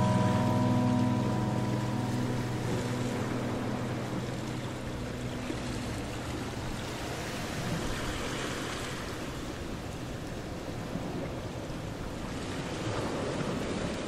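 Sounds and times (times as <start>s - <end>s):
soft guitar music: 0.0s - 9.2s.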